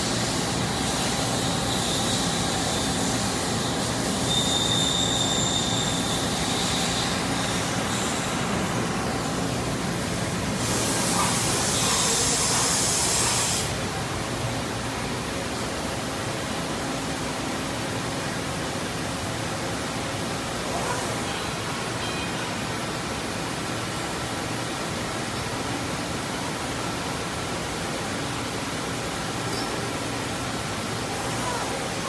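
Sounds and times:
lathe machine running: 0:00.0 - 0:13.8
coolant spraying hiss: 0:00.0 - 0:22.0.

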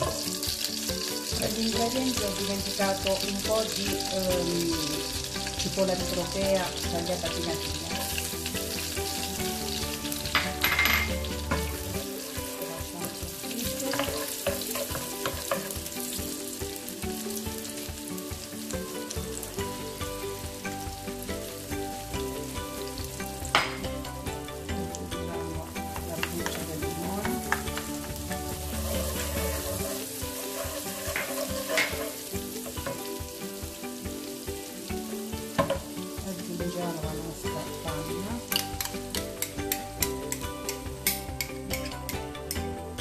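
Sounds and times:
onion sizzling in a frying pan: 0:00.0 - 0:43.0
wooden spoon stirring: 0:13.8 - 0:15.8, 0:28.5 - 0:33.1.

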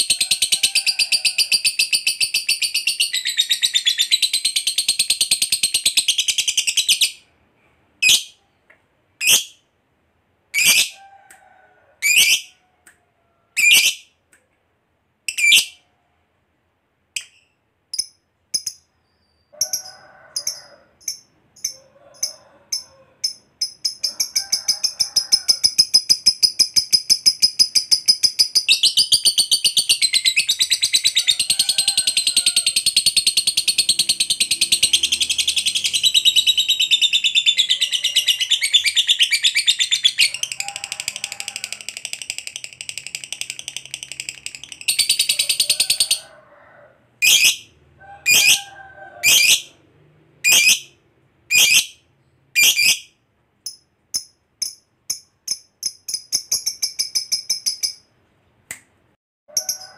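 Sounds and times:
sharp bird calls: 0:32.3 - 0:40.8, 0:47.2 - 0:49.7, 0:50.4 - 0:53.1
lovebird shrill trill: 0:47.2 - 0:47.7, 0:51.5 - 0:52.0, 0:52.6 - 0:53.1.

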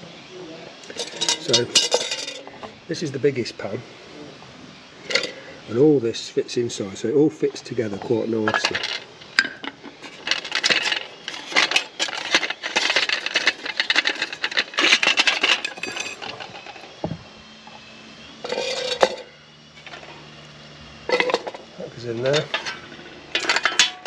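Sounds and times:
metal pans clattering: 0:00.9 - 0:02.4, 0:18.4 - 0:19.3, 0:21.1 - 0:21.7, 0:22.3 - 0:24.0.

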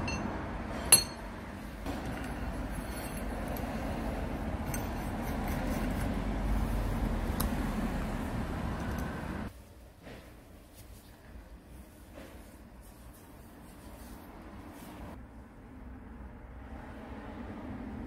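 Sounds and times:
sharp metal clink: 0:00.9 - 0:01.3.

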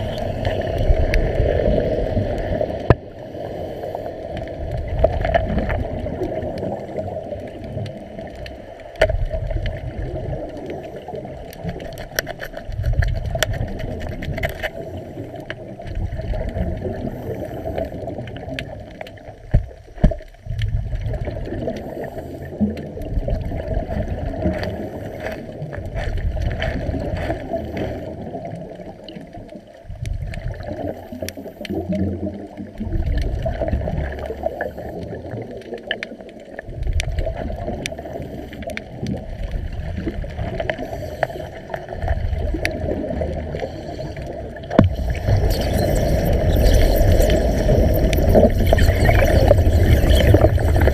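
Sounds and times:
underwater bubbles gurgling: 0:00.0 - 0:50.9
small clicks: 0:11.5 - 0:14.8.

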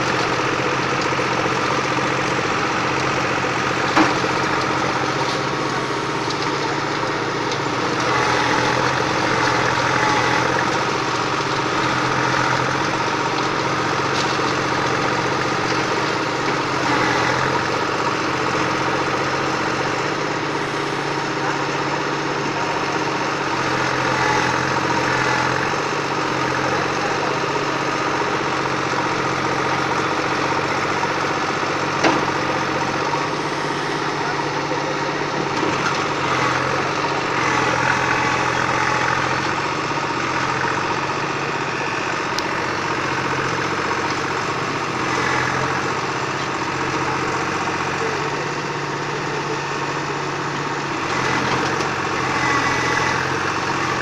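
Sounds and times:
backhoe digging and dumping soil: 0:00.0 - 0:54.0
tractor engine running: 0:00.0 - 0:54.0.

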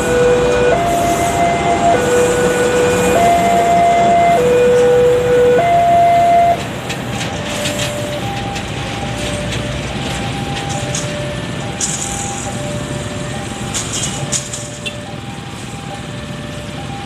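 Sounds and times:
level crossing alarm two-tone: 0:00.0 - 0:06.6
train rumbling past: 0:00.0 - 0:14.4.

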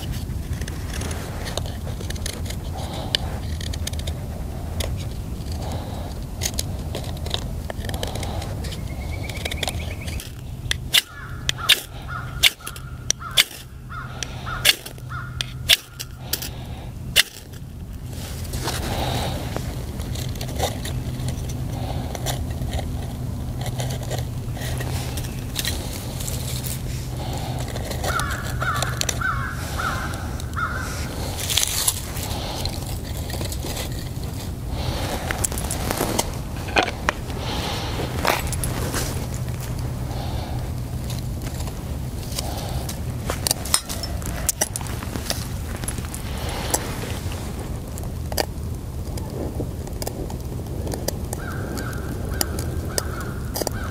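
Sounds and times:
bird calling: 0:08.0 - 0:16.9, 0:24.5 - 0:41.2, 0:51.4 - 0:53.9.

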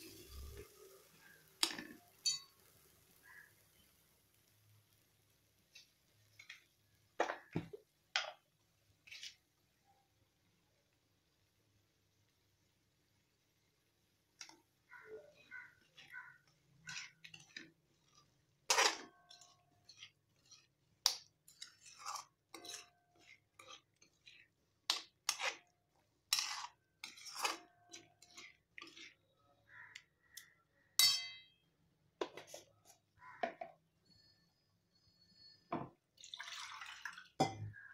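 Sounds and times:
metal spoon scraping a metal pan: 0:09.0 - 0:09.4, 0:14.4 - 0:31.5.

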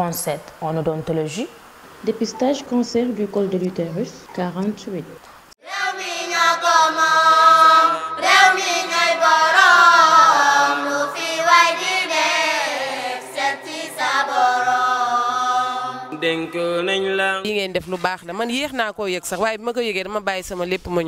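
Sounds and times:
person singing a chant: 0:05.6 - 0:17.1.

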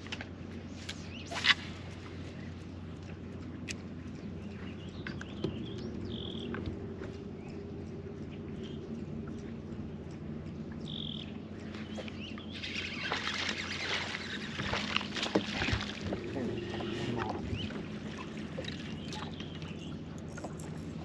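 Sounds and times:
electric trolling motor hum: 0:01.1 - 0:21.0
bird chirps: 0:10.8 - 0:14.5
rushing water: 0:11.5 - 0:21.0.

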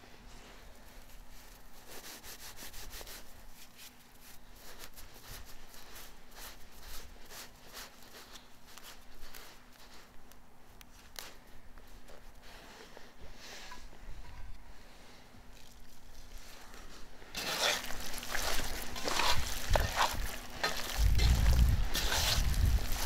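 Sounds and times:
faint steady hum: 0:00.0 - 0:23.0
dried herbs crackling: 0:00.8 - 0:12.8, 0:15.5 - 0:23.0.

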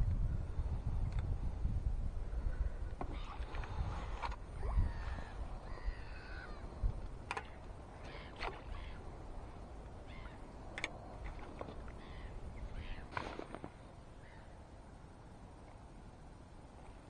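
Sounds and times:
wind rumble on microphone: 0:00.0 - 0:14.8
crows cawing: 0:04.9 - 0:06.6.

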